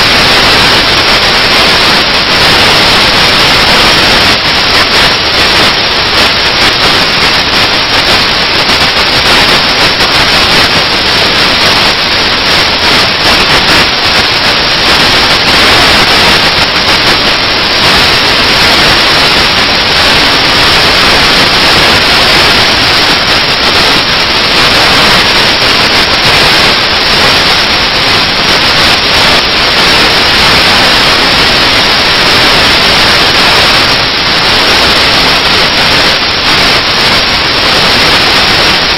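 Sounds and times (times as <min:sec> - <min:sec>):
loud steady hiss: 0:00.0 - 0:38.9.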